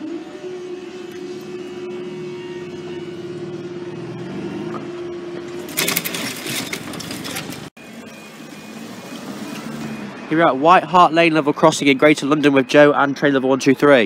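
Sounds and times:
barrier motor hum: 0.0 - 10.7
barrier rattling and clattering: 5.6 - 7.7.

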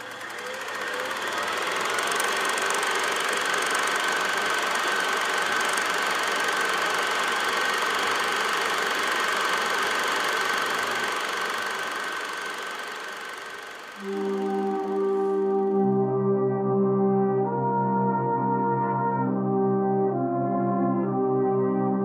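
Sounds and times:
film projector whirring and clattering: 0.0 - 15.7.

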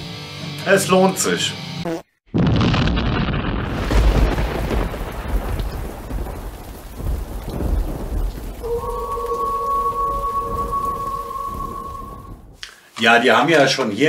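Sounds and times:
rolling thunder: 2.4 - 12.6
steady rain: 3.6 - 13.1
steady high tone: 8.6 - 12.5.

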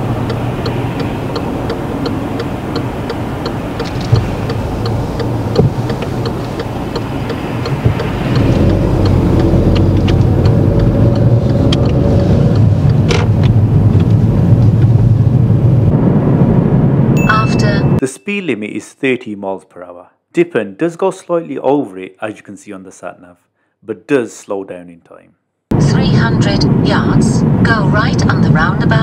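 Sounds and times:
turn indicator ticking: 0.0 - 15.0
car engine idling: 0.0 - 16.1
road noise: 0.0 - 18.1, 25.7 - 29.0.

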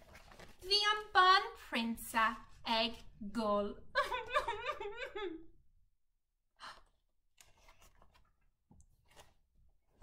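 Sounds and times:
book pages rustling: 0.0 - 0.8, 7.4 - 10.0.

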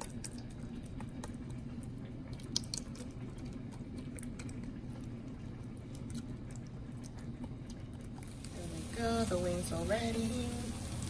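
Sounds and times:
fork squishing chicken wings: 0.0 - 8.6
steady low hum: 0.0 - 11.0.

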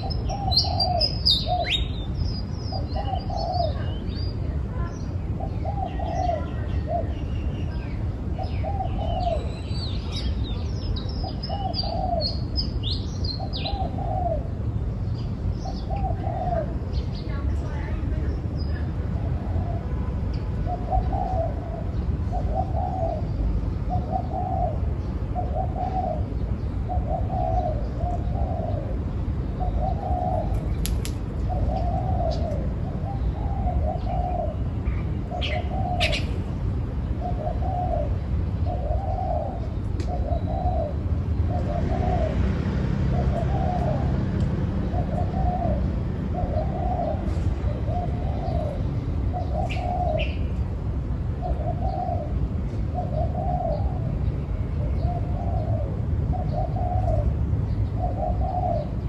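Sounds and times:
dove cooing: 0.0 - 1.9, 2.7 - 3.9, 5.4 - 7.1, 8.4 - 9.5, 11.0 - 12.5, 13.4 - 14.6, 15.6 - 16.9, 20.6 - 36.6, 37.2 - 50.5, 51.3 - 59.0.

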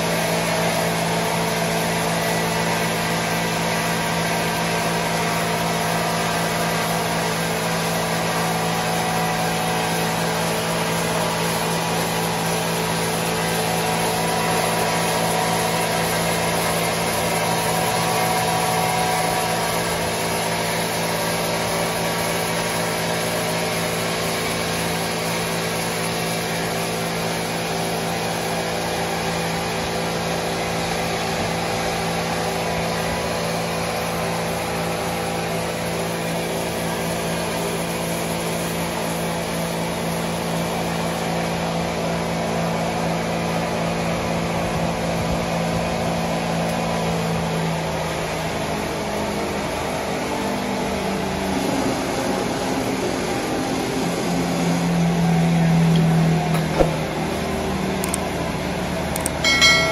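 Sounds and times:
sawmill machinery humming: 0.0 - 59.9
low droning tone: 59.2 - 59.9.

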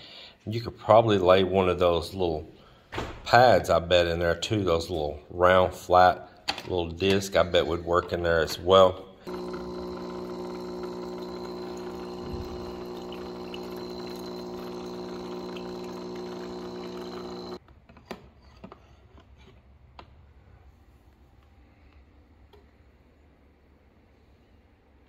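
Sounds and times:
coffee maker pump humming: 9.2 - 17.6.

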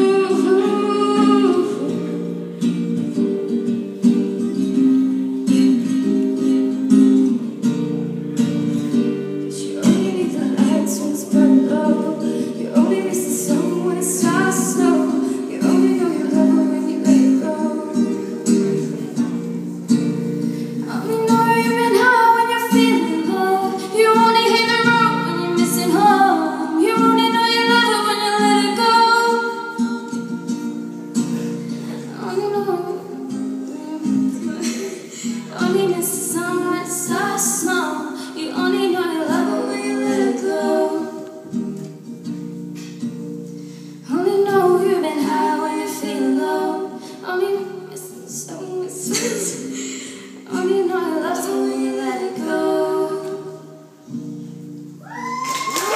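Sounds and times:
girl singing: 0.0 - 2.4, 9.4 - 19.7, 20.8 - 30.6, 31.9 - 41.6, 44.0 - 54.0
acoustic guitar strumming chords: 0.0 - 47.2.

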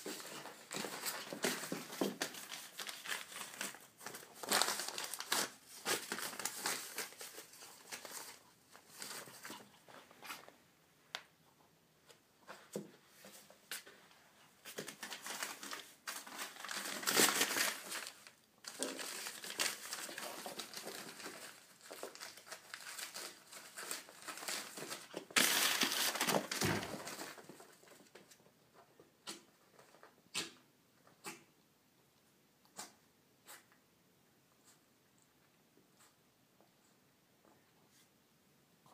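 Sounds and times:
newspaper crinkling and rustling: 0.0 - 10.5, 14.6 - 28.4.

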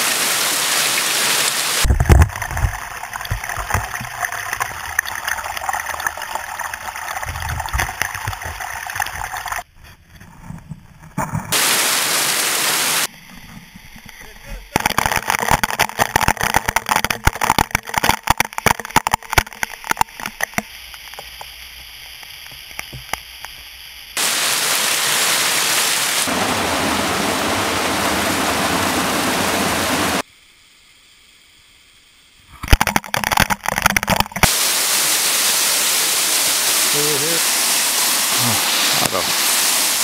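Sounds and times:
waterfall rushing: 0.0 - 1.9, 11.6 - 13.1, 24.2 - 30.2, 34.4 - 40.0.

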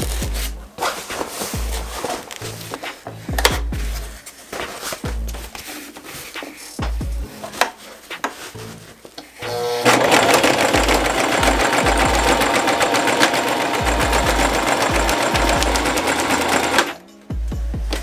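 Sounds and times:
electric sewing machine stitching: 9.4 - 17.0.

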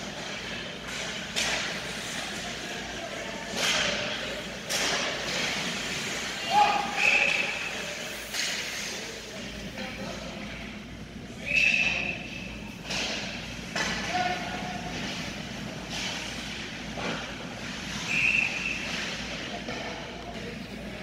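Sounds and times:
hockey sticks knocking puck: 0.0 - 2.8, 3.4 - 9.0, 12.7 - 20.6
indoor rink rumble: 0.0 - 21.0
voices: 0.7 - 21.0.

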